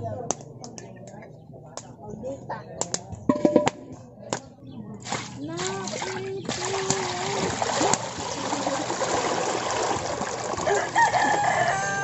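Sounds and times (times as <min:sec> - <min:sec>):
water pouring into metal pot: 0:05.1 - 0:11.3.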